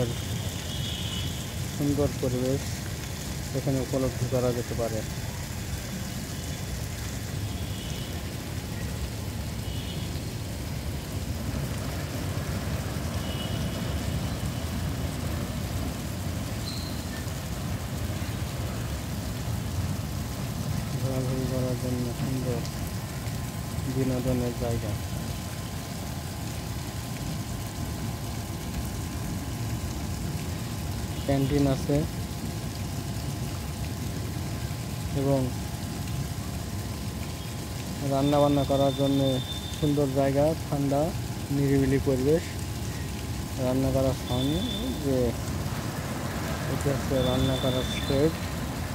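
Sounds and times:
road traffic rumble: 0.0s - 48.9s
faint high chirps: 16.6s - 17.2s.

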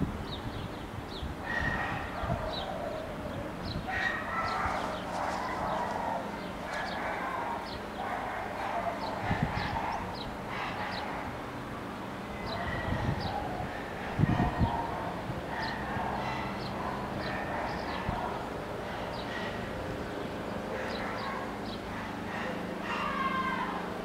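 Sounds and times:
longer animal calls: 20.7s - 23.8s.

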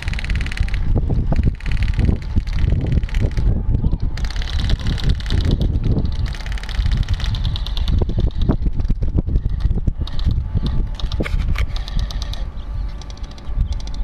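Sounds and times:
rapid airsoft gunfire: 0.0s - 3.6s, 4.2s - 10.4s
wind on microphone: 0.0s - 14.0s.

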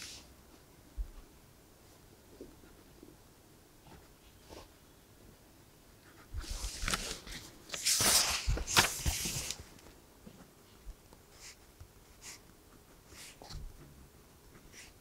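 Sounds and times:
paper rustling: 6.4s - 9.9s.

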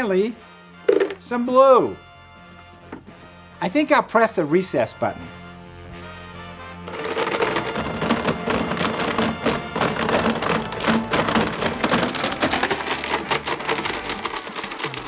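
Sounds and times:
blender grinding markers: 6.9s - 15.0s.

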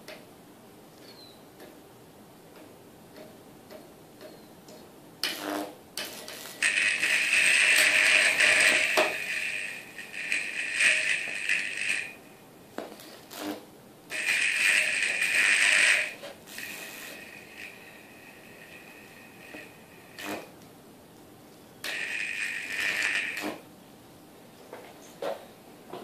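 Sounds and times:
electric arc buzzing crackle: 5.2s - 20.7s, 21.8s - 23.7s.

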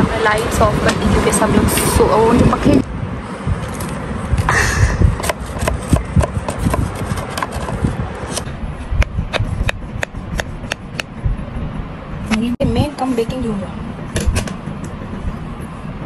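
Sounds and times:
sharp clicks and knocks: 14.1s - 15.0s.

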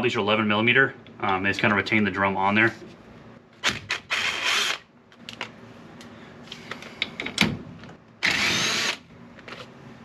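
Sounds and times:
impact driver running: 8.2s - 9.0s.

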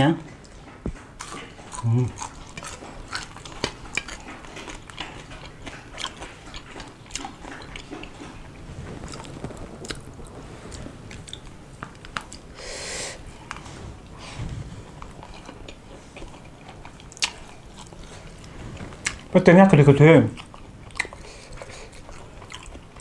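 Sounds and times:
person chewing food: 0.3s - 19.3s, 20.3s - 23.0s
short hissing breath: 12.6s - 13.2s.

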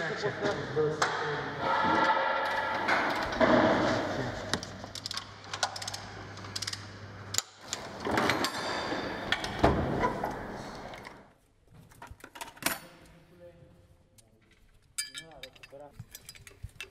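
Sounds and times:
metal tools clinking: 14.7s - 16.9s.

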